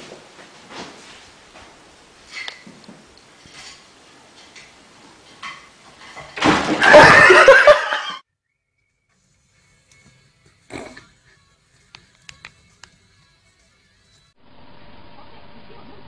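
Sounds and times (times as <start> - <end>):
cat falling onto tiled floor: 6.2 - 7.4
people laughing: 6.8 - 8.2.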